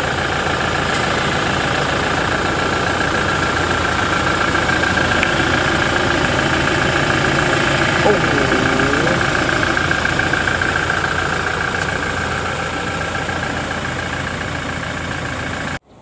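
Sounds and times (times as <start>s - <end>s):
pickup engine idling: 0.0s - 15.8s.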